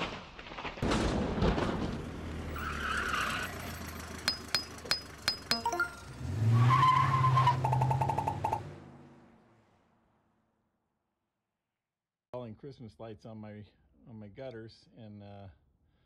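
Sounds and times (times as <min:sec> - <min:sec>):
vehicle engine drone: 0:01.8 - 0:10.1
short beeps: 0:05.5 - 0:06.1.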